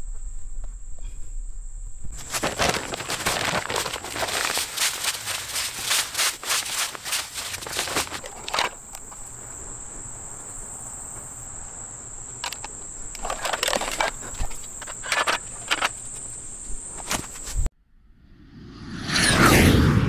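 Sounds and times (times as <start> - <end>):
granules poured from paper bag: 2.2 - 8.7
camera box clicks and rattles: 7.6 - 9.1, 12.4 - 16.0.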